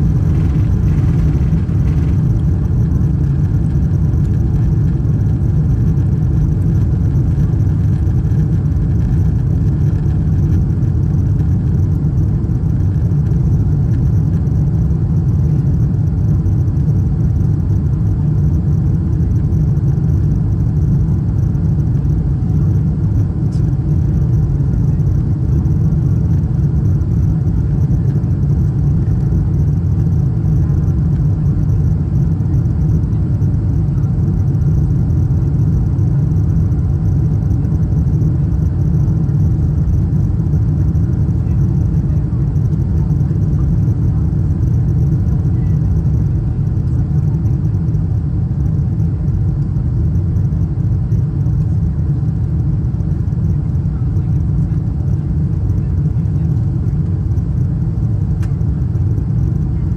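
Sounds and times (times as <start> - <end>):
airliner cabin rumble: 0.0 - 59.9.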